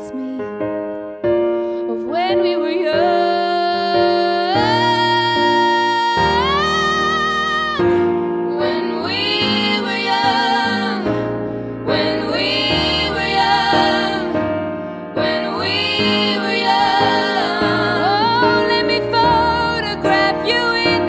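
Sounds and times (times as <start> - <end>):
woman singing: 0.0 - 0.5, 1.9 - 11.0, 15.4 - 21.0
piano and band accompaniment: 0.0 - 21.0.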